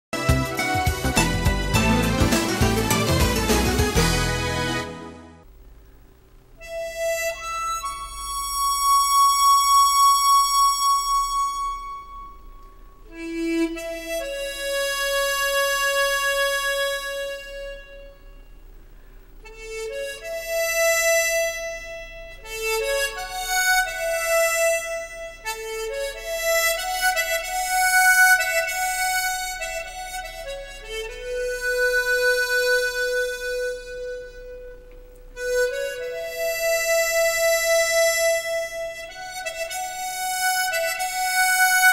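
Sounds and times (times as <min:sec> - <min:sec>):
harmonica playing slow melody: 0:00.2 - 0:05.5, 0:06.6 - 0:41.9.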